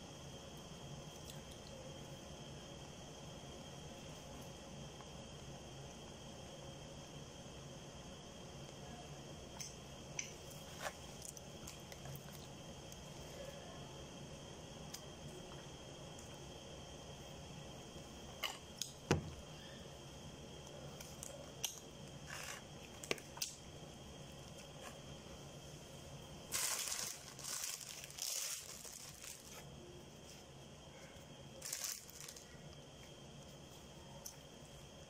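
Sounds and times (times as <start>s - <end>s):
wrapper crinkling and tearing: 26.5s - 29.6s, 31.6s - 32.5s.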